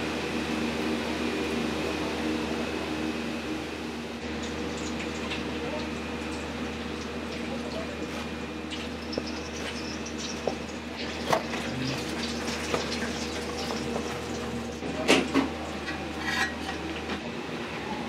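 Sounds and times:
kitchen equipment humming: 0.0 - 18.0
utensils and dishes clinking: 15.0 - 17.2.

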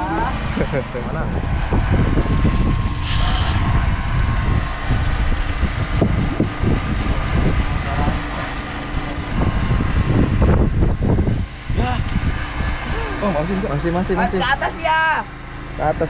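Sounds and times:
wind buffeting microphone: 0.0 - 15.8
boat engine rumble: 0.0 - 16.0.

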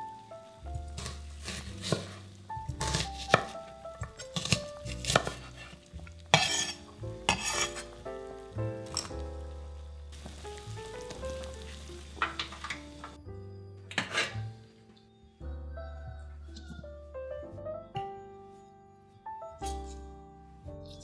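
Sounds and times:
soft background music: 0.0 - 21.0
knife slicing onion on wooden board: 0.9 - 7.8.

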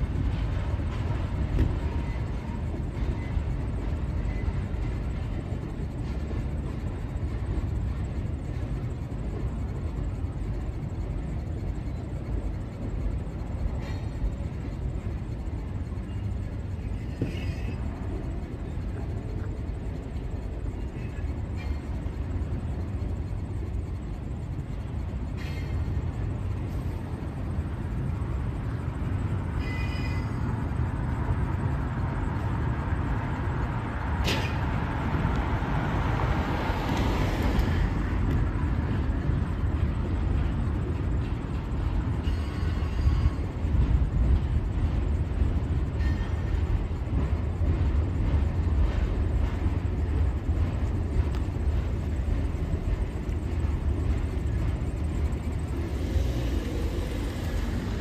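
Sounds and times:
train wheels rumbling on rail: 0.0 - 58.0
high wheel squeals: 29.5 - 30.8, 42.1 - 43.6.

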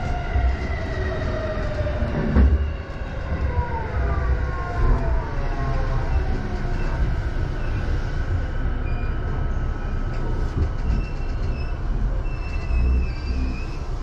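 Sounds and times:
train wheels rumbling on rails: 0.0 - 14.0
high-pitched brake squeals: 10.9 - 14.0.

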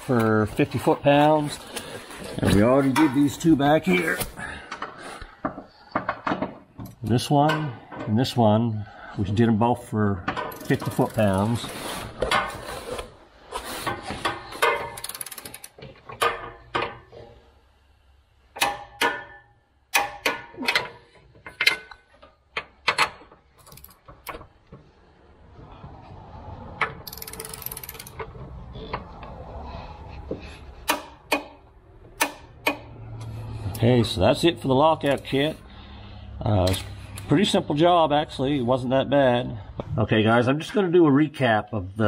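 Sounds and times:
socket ratchet clicking: 15.0 - 15.8, 27.0 - 28.2.

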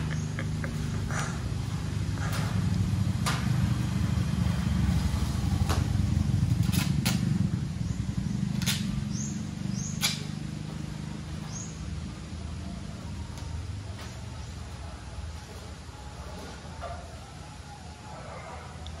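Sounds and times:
vehicle engine rumbling past: 0.0 - 19.0
sharp clicks: 9.9 - 10.4.

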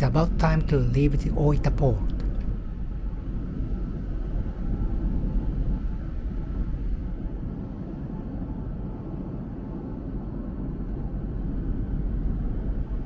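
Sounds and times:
ferry engines rumbling: 0.0 - 10.0.

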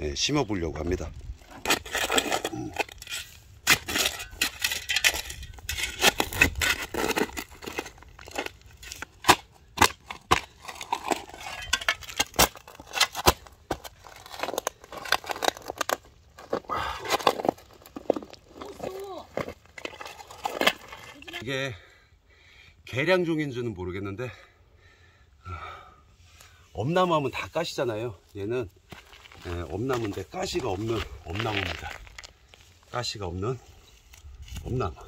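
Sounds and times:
shovel scraping stony soil: 1.3 - 21.4.

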